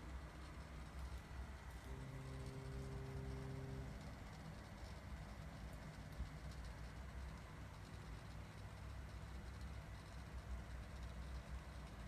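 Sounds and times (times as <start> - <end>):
water pump humming: 0.0 - 12.0.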